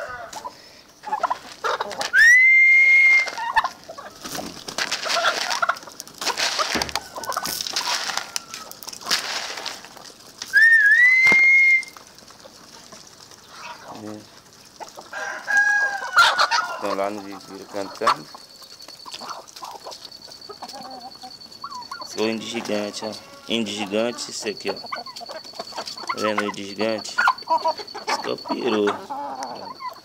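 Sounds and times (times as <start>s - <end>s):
poultry clucking: 0.0s - 2.3s, 3.0s - 10.6s, 11.3s - 30.0s
poultry scuffling: 0.0s - 30.0s
high whistle-like bird calls: 2.1s - 3.6s, 10.5s - 12.0s
wings flapping: 3.1s - 15.1s.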